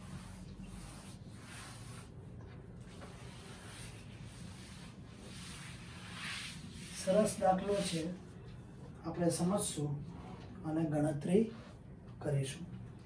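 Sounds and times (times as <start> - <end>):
cloth wiping a chalkboard: 0.0 - 8.4, 11.2 - 11.8.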